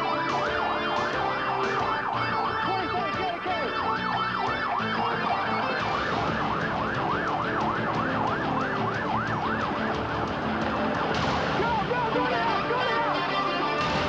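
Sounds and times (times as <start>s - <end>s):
siren yelping: 0.0s - 14.0s
steady beat: 4.6s - 14.0s.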